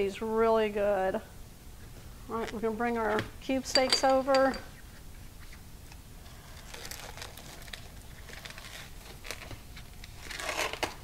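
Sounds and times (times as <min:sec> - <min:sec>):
plastic wrap crinkling: 0:06.2 - 0:11.0.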